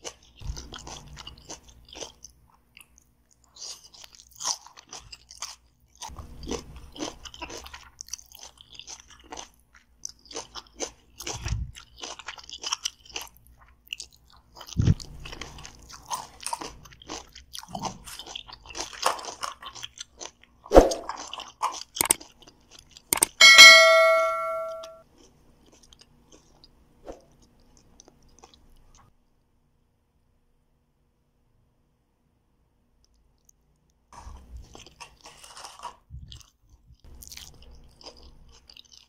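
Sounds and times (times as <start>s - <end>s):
chewing crunchy salad: 0.0s - 23.4s, 25.0s - 29.1s, 33.0s - 39.0s
wet mouth sounds: 14.6s - 15.1s.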